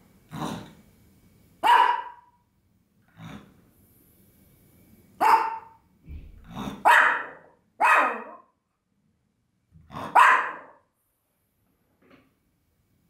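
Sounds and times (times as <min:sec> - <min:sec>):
dog barking: 0:01.6 - 0:02.4, 0:05.2 - 0:05.8, 0:06.7 - 0:08.6, 0:10.0 - 0:10.9.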